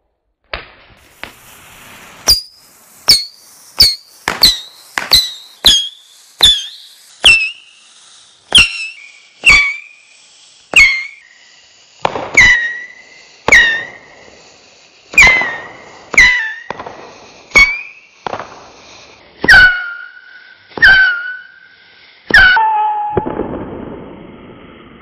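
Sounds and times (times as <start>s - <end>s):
rockets firing cracks: 0.4s - 21.6s, 22.2s - 25.0s
falling rocket whistle: 1.1s - 11.4s, 12.1s - 14.3s, 15.1s - 16.9s, 17.5s - 18.6s, 19.4s - 23.7s.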